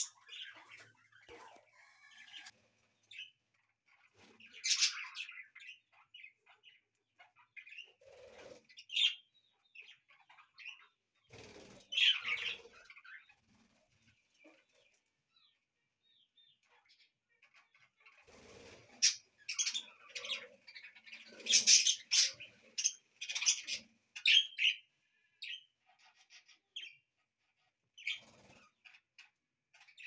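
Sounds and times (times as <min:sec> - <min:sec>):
budgerigars chirping: 0:00.0 - 0:02.5, 0:03.9 - 0:13.4, 0:16.4 - 0:27.0.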